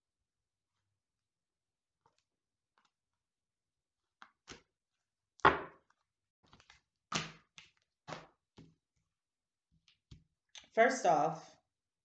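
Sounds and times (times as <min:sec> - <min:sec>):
cards thumping on tabletop: 0:05.4 - 0:05.8.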